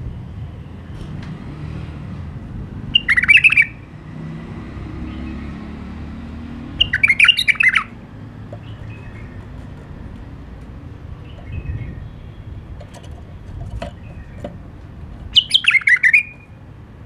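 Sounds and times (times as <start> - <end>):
bird singing warbled notes: 6.8 - 8.0, 15.3 - 16.6.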